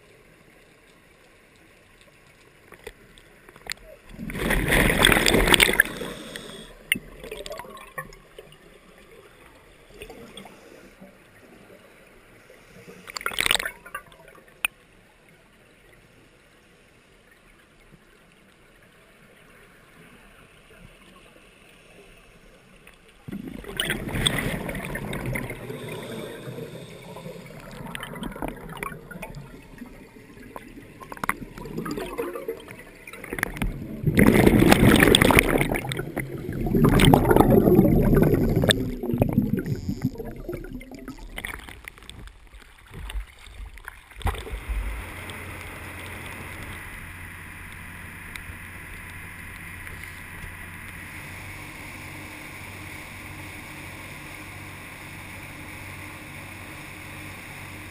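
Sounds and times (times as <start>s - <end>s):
exhaled regulator bubbles rushing: 4.1s - 8.2s, 23.3s - 42.0s, 44.2s - 46.8s
underwater scuba breathing: 4.3s - 7.0s, 9.9s - 13.3s, 23.6s - 28.7s
low boat engine hum: 23.9s - 41.2s, 42.3s - 57.9s.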